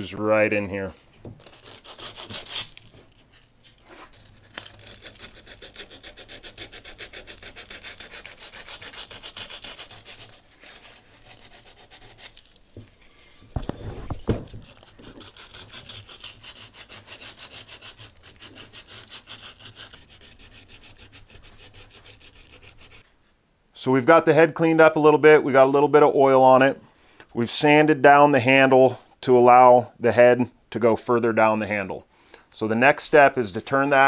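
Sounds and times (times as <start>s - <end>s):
sandpaper rubbing on wood: 1.6s - 2.8s, 4.2s - 12.6s, 14.5s - 23.1s.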